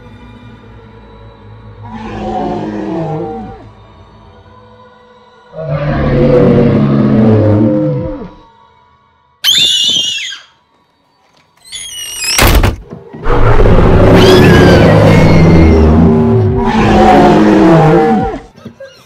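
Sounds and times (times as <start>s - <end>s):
child screaming: 9.4s - 10.6s, 14.1s - 15.9s
children growling and screaming: 13.2s - 18.5s.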